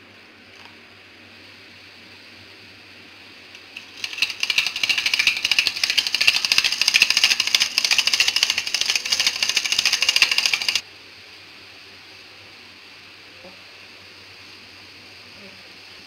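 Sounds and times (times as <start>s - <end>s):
rotary egg beater rattling: 3.6s - 10.8s.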